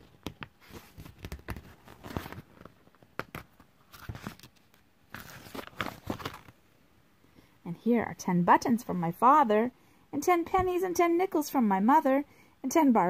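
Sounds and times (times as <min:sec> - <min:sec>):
book pages rustling and turning: 0:00.0 - 0:06.6.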